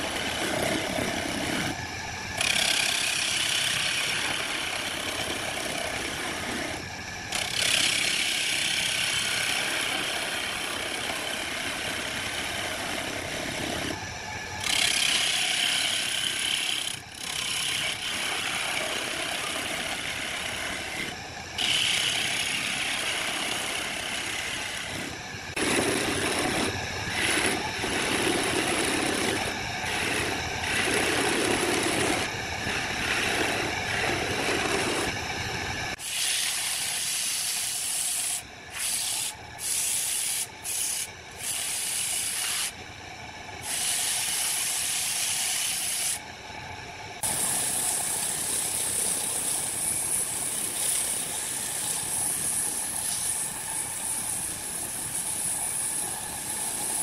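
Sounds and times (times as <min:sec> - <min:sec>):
lathe motor running: 0:00.0 - 0:39.2
tool scraping wood on lathe: 0:02.4 - 0:14.0, 0:14.6 - 0:35.2.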